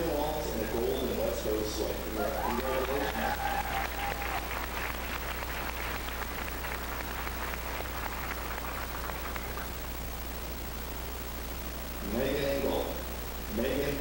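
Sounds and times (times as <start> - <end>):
steady low hum: 0.0 - 14.0
audience applauding: 2.1 - 9.8.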